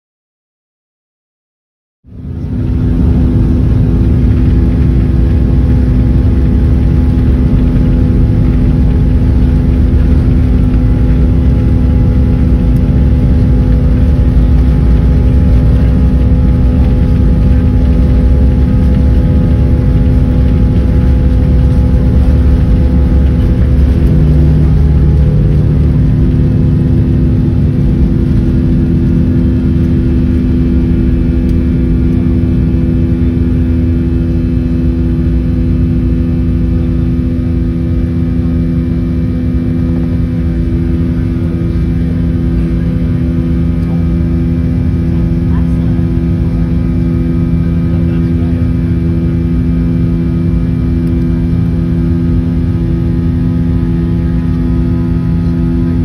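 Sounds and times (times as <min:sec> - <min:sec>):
jet engines and runway rumble: 0:02.0 - 0:56.0
lower tone: 0:02.0 - 0:56.0
steady humming tones: 0:02.1 - 0:56.0.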